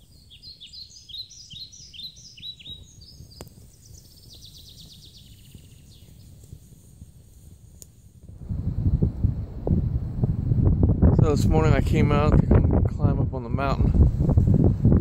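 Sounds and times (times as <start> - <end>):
songbird chirping and trilling: 0.0 - 6.7
low background rumble: 8.3 - 15.0.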